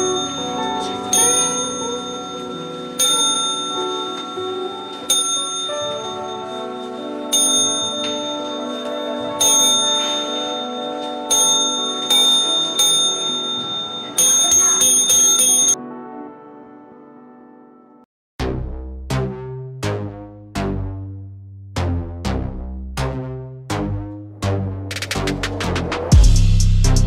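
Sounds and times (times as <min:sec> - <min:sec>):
small bell dinging: 0:00.0 - 0:15.8
background music: 0:00.0 - 0:27.0.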